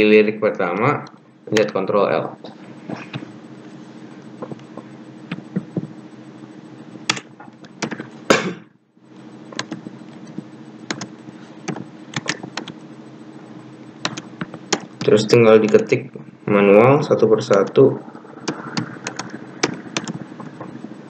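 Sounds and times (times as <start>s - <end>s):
steady low hum: 0.0s - 21.0s
computer keyboard clicks: 9.6s - 9.8s, 10.9s - 11.1s, 11.7s - 12.8s, 14.0s - 15.8s.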